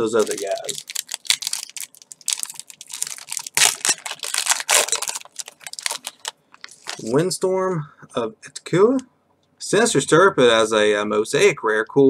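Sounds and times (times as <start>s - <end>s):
foil pack tearing and crinkling: 0.0s - 7.2s.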